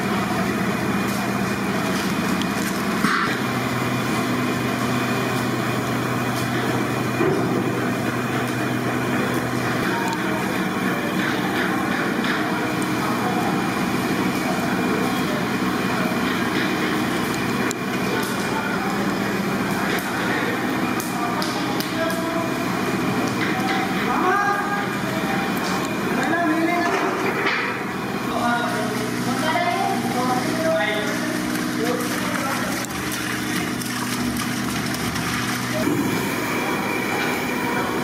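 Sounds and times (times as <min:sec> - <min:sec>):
kitchen drone: 0:00.0 - 0:38.0.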